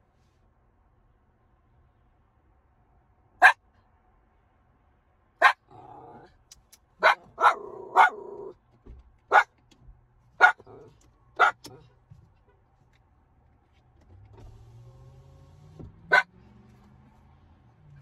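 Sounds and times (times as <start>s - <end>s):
dog barking: 3.4s - 3.6s, 5.4s - 6.3s, 7.0s - 8.6s, 9.3s - 9.5s, 10.4s - 11.9s, 16.1s - 16.4s
dog whining: 7.0s - 8.5s.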